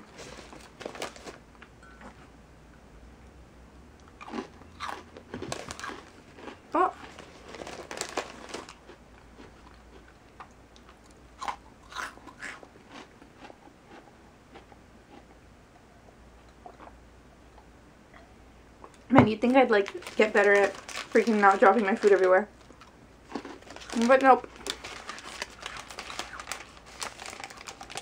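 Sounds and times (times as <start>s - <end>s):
cookie being chewed and crunched: 4.0s - 15.3s, 19.8s - 28.0s.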